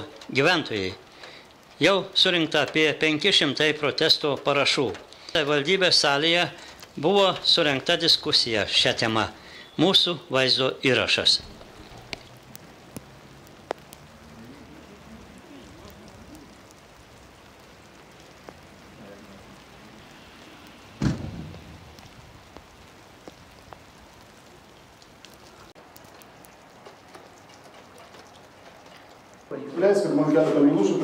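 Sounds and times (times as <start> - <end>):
loud thump: 21.0 - 21.8.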